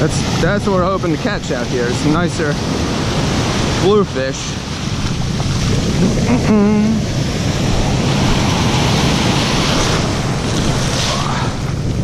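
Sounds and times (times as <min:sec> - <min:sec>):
foamy wash running over sand: 0:00.0 - 0:06.0
ocean surf breaking: 0:00.0 - 0:12.0
wind rumbling on microphone: 0:00.0 - 0:12.0.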